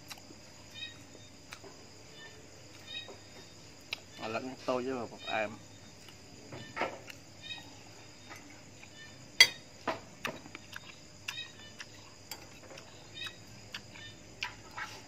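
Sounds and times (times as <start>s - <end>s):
mouth chewing watermelon: 10.2s - 15.0s.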